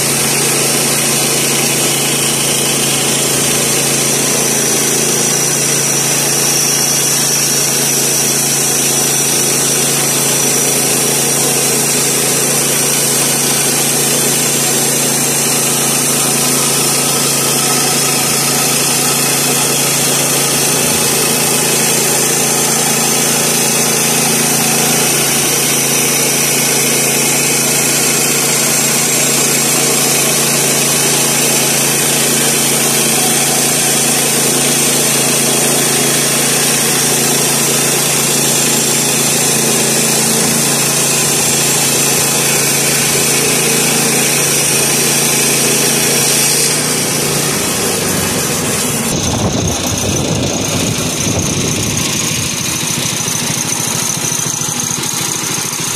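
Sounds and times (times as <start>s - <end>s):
bandsaw blade sawing through log: 0.0s - 55.9s
gas engine running under load: 0.0s - 55.9s.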